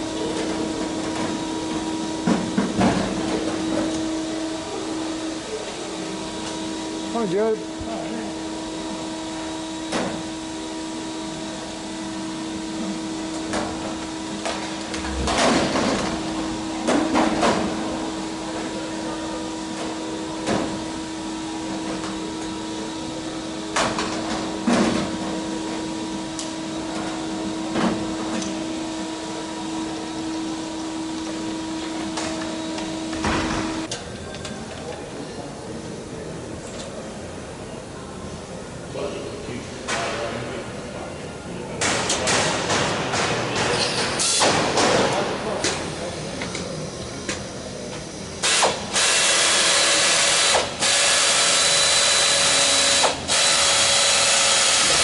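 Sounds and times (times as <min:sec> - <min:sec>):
steady hum: 0:00.0 - 0:33.9.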